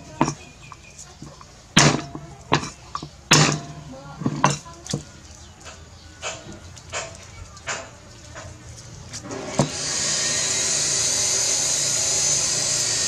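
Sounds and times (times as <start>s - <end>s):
cleaver striking chopping board: 1.8s - 5.1s.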